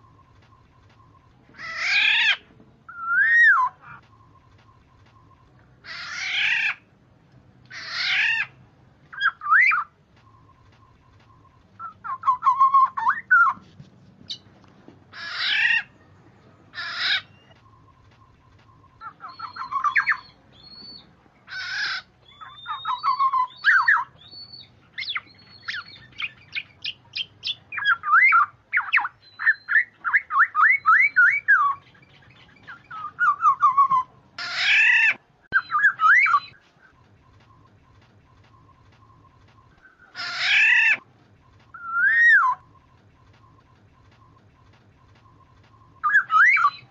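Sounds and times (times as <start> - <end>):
oriole calling: 0.0 - 7.0, 7.6 - 46.9
bird chattering notes: 16.7 - 46.9.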